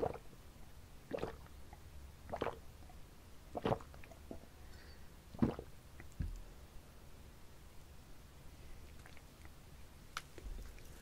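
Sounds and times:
person gulping liquid: 0.0s - 0.3s, 1.1s - 1.5s, 2.3s - 2.6s, 3.5s - 4.5s, 5.3s - 6.4s.

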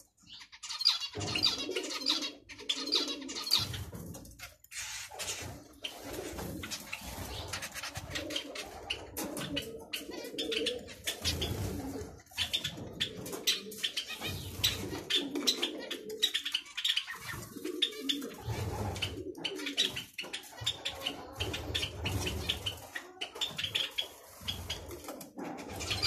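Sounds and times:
pigeons cooing: 0.0s - 26.0s
finches beeping chatter: 0.2s - 3.9s, 12.3s - 24.9s.

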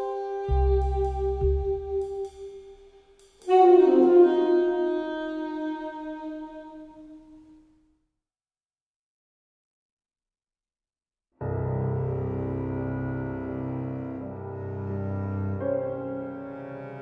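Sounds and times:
brass chord: 0.0s - 2.7s, 3.5s - 7.1s
held saxophone note: 0.0s - 2.9s, 3.5s - 7.5s.

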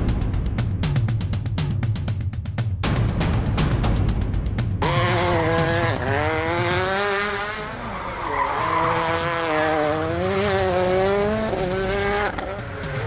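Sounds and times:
rally car engine revving: 4.8s - 13.0s
tyres sliding on tarmac: 7.9s - 9.2s.

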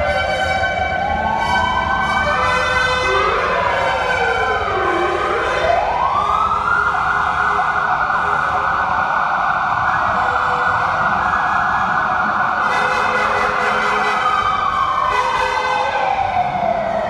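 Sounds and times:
high horn tones: 0.0s - 4.2s, 12.6s - 14.4s
rumble of car engines: 0.0s - 17.0s
siren car horn wailing: 0.0s - 17.0s.

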